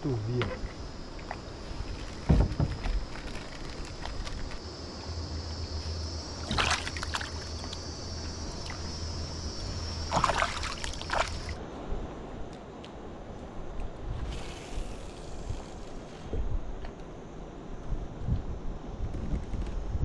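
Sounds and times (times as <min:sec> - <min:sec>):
high insect buzz: 0:00.0 - 0:11.6, 0:14.2 - 0:16.4
water sloshing: 0:00.5 - 0:11.6
heavy thump: 0:02.2 - 0:03.0.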